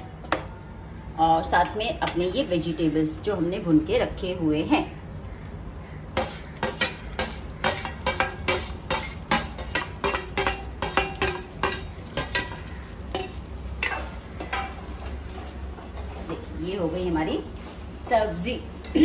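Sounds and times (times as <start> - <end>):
steel spoon scraping and clinking: 6.2 - 14.7.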